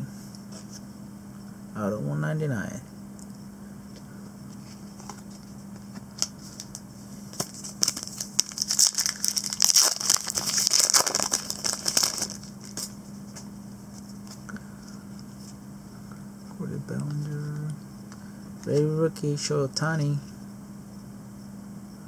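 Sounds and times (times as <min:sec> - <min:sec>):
foil wrapper crinkling and tearing: 0:07.4 - 0:12.9.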